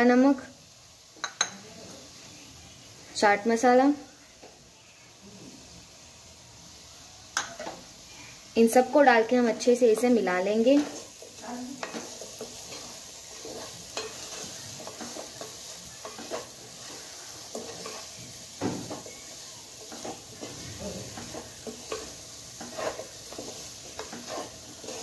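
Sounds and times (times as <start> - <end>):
low sizzle of frying: 0.0 - 25.0
wooden spatula scraping pot: 9.9 - 18.2, 19.8 - 25.0.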